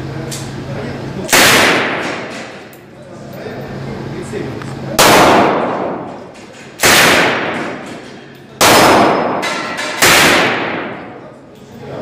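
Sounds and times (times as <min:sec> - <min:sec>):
submachine gun shots echoing: 0:01.3 - 0:02.6, 0:05.0 - 0:06.1, 0:06.8 - 0:07.9, 0:08.6 - 0:11.2.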